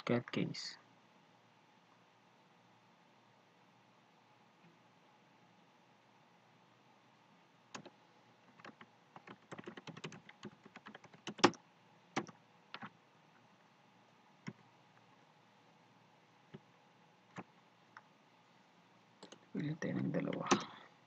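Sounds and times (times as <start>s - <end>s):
typing on computer keyboard: 7.7s - 7.9s, 8.5s - 11.6s, 12.2s - 12.9s.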